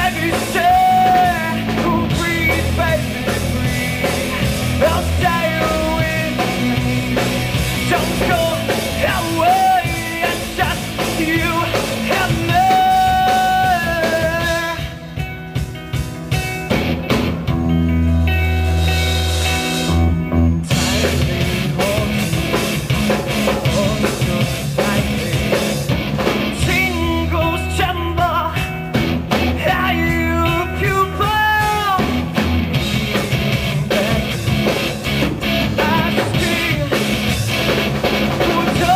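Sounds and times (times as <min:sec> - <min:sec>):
lead vocals: 0:00.0 - 0:16.6, 0:17.7 - 0:38.9
bass guitar: 0:00.0 - 0:38.9
drums: 0:00.0 - 0:38.9
electric guitar: 0:00.0 - 0:38.9.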